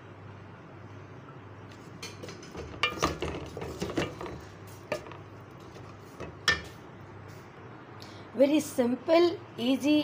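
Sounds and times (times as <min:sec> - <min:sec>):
spatula scraping metal pot: 0:02.1 - 0:06.7.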